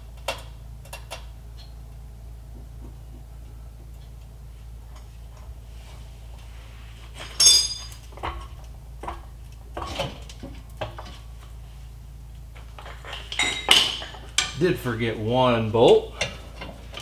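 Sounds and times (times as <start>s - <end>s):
metal hand tools clinking: 7.3s - 8.0s.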